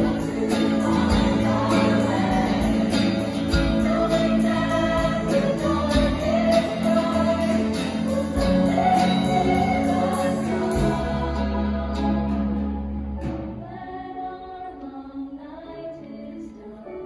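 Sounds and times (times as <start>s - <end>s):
acoustic guitar strumming: 0.0s - 13.6s
choir singing: 0.0s - 17.0s.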